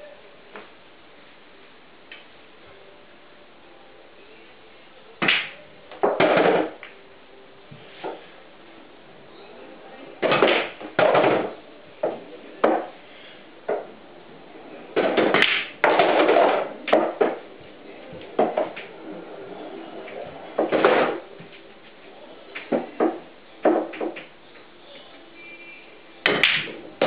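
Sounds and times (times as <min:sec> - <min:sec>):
pool balls knocking: 0:05.2 - 0:07.0, 0:10.2 - 0:13.0, 0:13.6 - 0:14.0, 0:14.9 - 0:24.4, 0:26.2 - 0:27.0.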